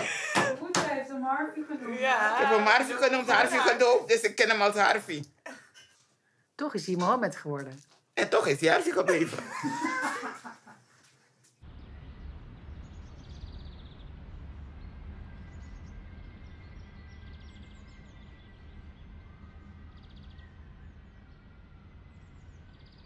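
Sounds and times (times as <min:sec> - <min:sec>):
steady low rumble: 0:11.6 - 0:23.0
small birds chirping: 0:12.8 - 0:14.1.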